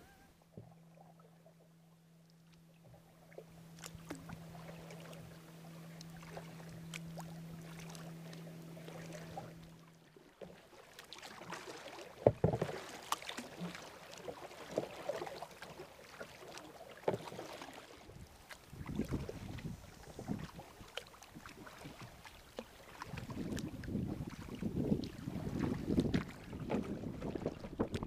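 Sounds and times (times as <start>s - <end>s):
steady low hum: 0.0s - 10.3s, 18.1s - 27.6s
kayak paddle splashes: 2.4s - 28.0s
paddle knocks: 12.2s - 12.8s.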